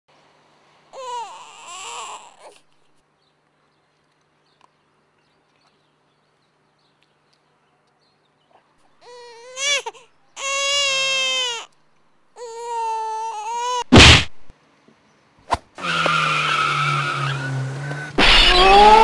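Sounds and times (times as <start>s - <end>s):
high-pitched wail: 18.2s - 19.0s
short high cry bending: 18.2s - 19.0s.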